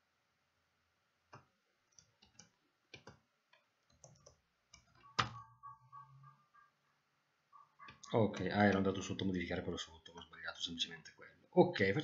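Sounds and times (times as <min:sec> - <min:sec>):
mouse and keyboard clicks: 0:01.3 - 0:05.4.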